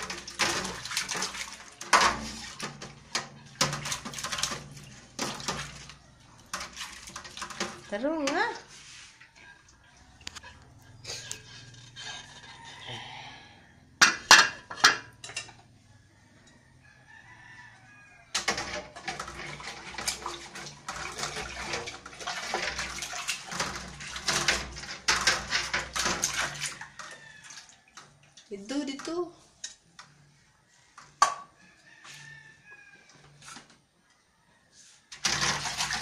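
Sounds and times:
water splashing in a basin: 0.0 - 11.8, 18.4 - 29.4, 35.1 - 36.0.

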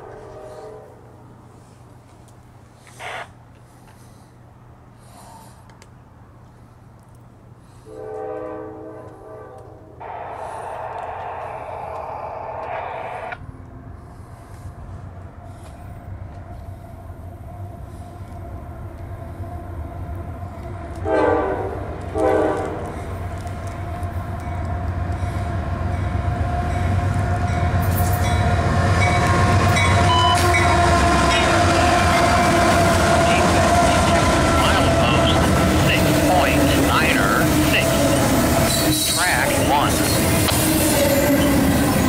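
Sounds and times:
locomotive air horn blasts: 0.0 - 1.1, 3.0 - 3.3, 7.8 - 10.8, 21.0 - 23.0, 29.7 - 41.6
wheels rumbling on rail: 0.0 - 42.0
locomotive engine: 10.0 - 42.0.

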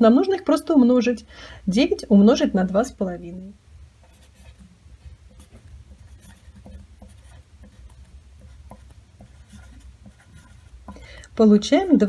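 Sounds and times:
pencil scratching on paper: 4.0 - 12.0.

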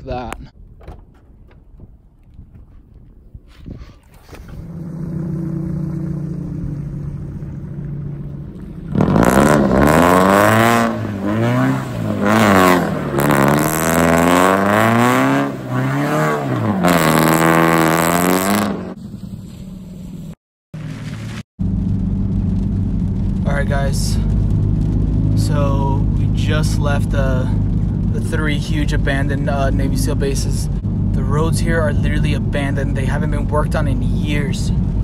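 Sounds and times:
sports car engine revving: 4.4 - 19.3.

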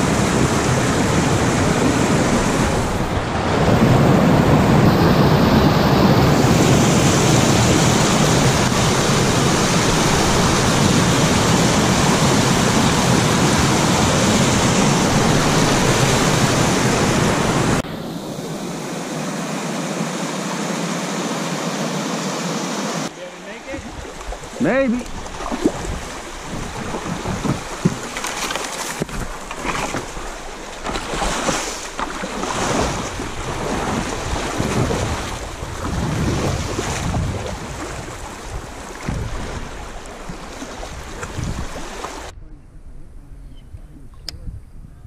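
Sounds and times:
river water rushing over rocks: 6.2 - 17.9.

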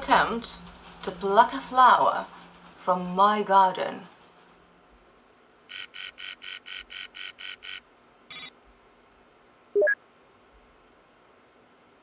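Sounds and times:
rapid electronic beeps: 5.7 - 8.5, 9.8 - 10.0.

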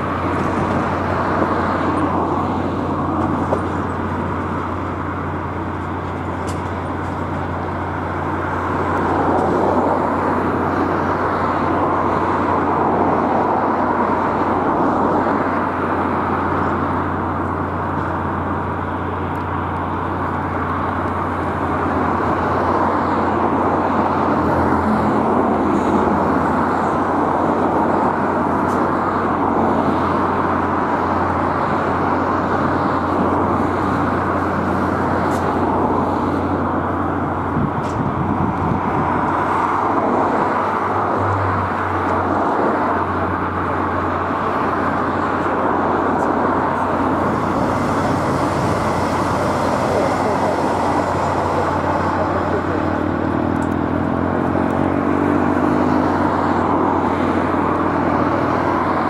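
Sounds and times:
freight train wheels rumbling: 0.0 - 59.0
low drone: 42.0 - 59.0.

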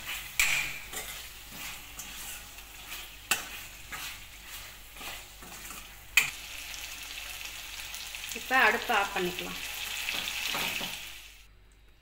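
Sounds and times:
metal spoon scraping a pan: 0.0 - 6.4
oil sizzling: 0.0 - 11.5.

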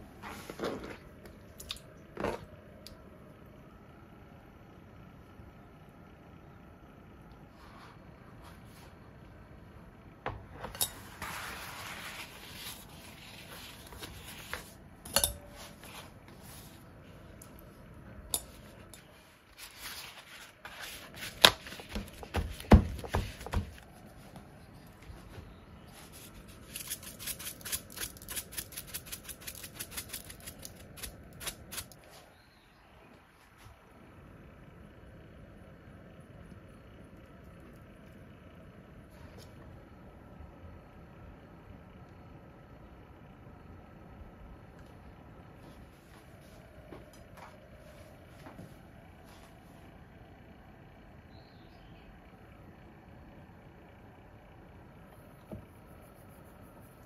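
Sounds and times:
knocks and clinks: 15.0 - 15.6
paper towel rustling: 19.2 - 24.3.

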